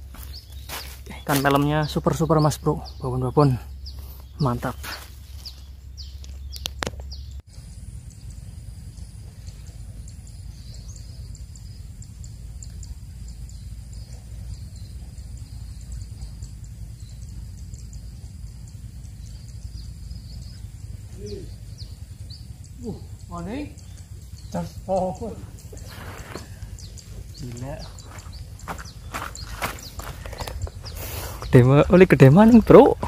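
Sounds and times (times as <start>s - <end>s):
steady high-pitched hum: 0.0s - 33.0s
steady low rumble: 0.0s - 33.0s.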